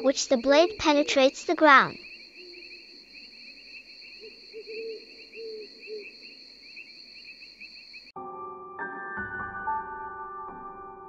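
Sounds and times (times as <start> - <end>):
crickets chirring: 0.0 - 8.1.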